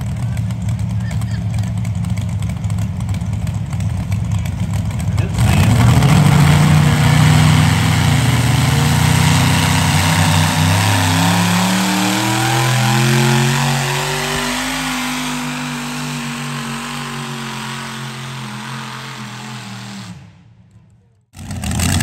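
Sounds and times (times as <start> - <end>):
pulling tractor engines running hard: 0.0 - 20.2.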